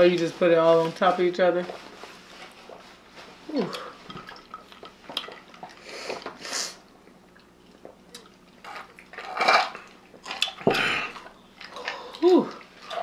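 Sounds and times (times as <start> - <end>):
drinks being sipped: 5.8 - 6.9.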